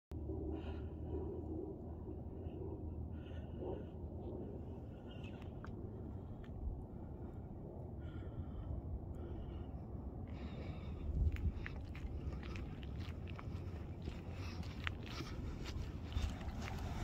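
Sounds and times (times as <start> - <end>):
wind rumbling on microphone: 0.1 - 17.0
faint footsteps: 10.7 - 17.0.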